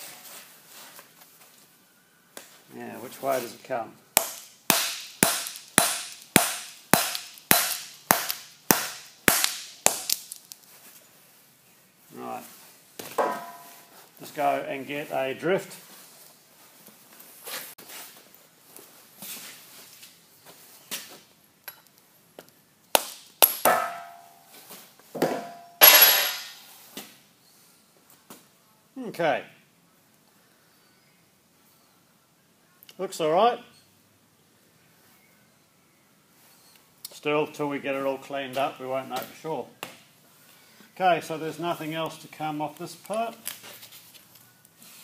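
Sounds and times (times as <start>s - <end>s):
mallet striking metal casting: 4.2s - 10.2s, 23.0s - 24.4s, 25.3s - 26.6s
short metallic ring: 25.4s - 26.7s.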